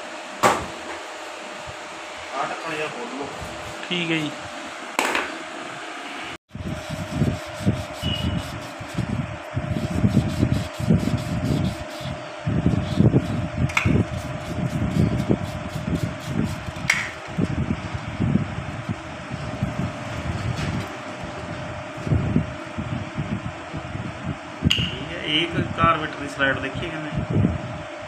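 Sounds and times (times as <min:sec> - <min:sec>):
fan humming: 0:00.0 - 0:28.0
low rumbling handling noise: 0:06.5 - 0:26.0.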